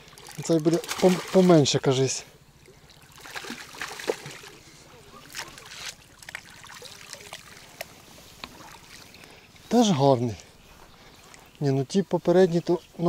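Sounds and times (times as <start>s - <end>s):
fish splashing at surface: 0.1s - 1.6s, 2.9s - 9.1s.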